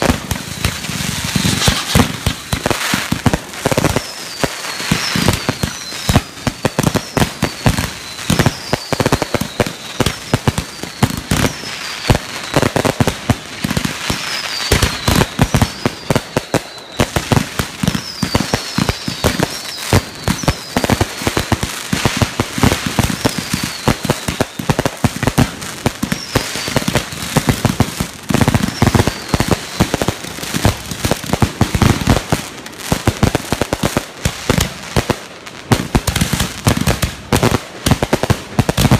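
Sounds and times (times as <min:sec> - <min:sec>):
falling firework whistle: 0:00.0 - 0:13.0, 0:13.6 - 0:31.2
fireworks popping and crackling: 0:00.0 - 0:38.9.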